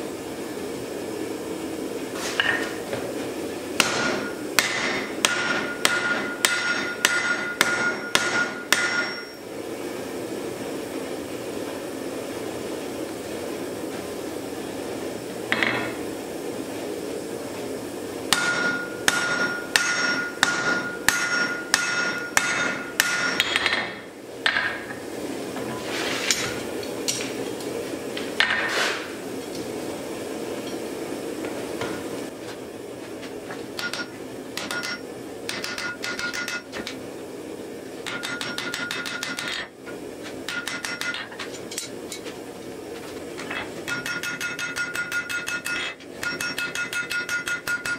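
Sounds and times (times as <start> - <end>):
hammer striking steel on anvil: 3.8 - 9.4, 18.3 - 24.9, 33.8 - 36.9, 38.0 - 39.7, 40.5 - 42.2, 43.5 - 47.9.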